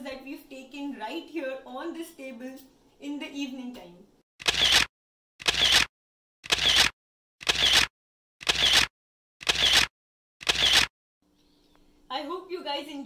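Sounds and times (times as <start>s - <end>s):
camera shutter: 4.4s - 10.9s.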